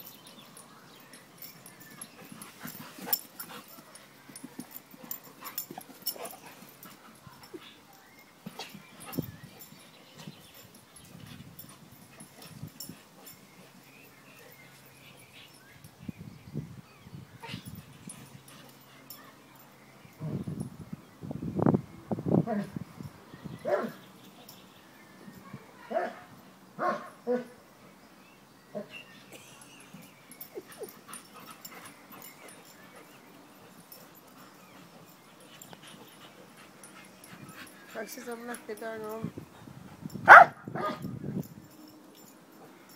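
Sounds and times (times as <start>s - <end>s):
dogs play-fighting: 0.4s - 15.9s, 17.4s - 20.2s, 29.2s - 42.9s.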